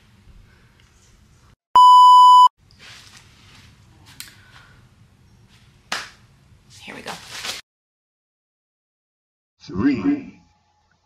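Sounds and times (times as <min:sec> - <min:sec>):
electronic bleep tone: 0:01.8 - 0:02.5.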